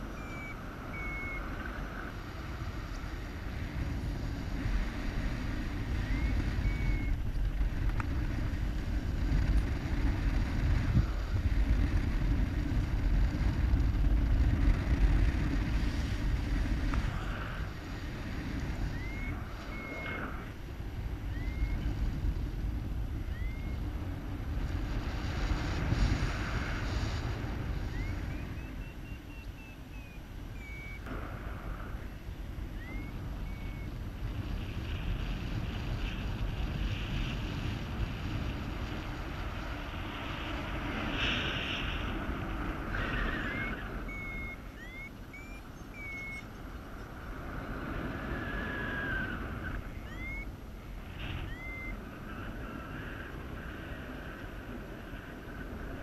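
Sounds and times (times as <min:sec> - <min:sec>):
wind buffeting microphone: 0:00.0 - 0:56.0
faint short chirps: 0:51.3 - 0:52.0.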